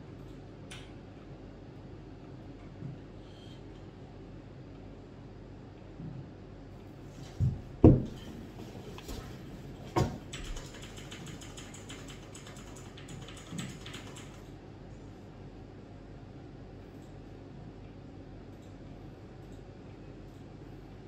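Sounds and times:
sharp knocks on a desk: 7.4 - 8.2
rapid scratchy clicking: 10.3 - 14.5.

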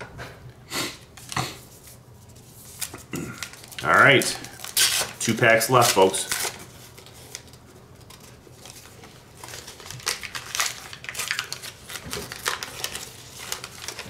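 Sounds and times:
card pack wrapper tearing: 2.8 - 14.0.

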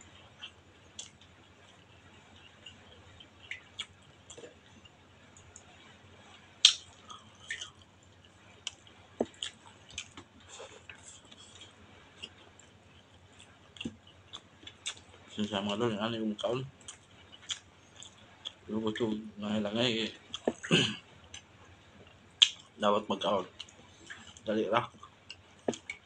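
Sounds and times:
chewing food: 0.1 - 6.0, 6.6 - 15.8, 16.4 - 19.1, 23.4 - 26.0
mouth clicks: 6.6 - 7.7.

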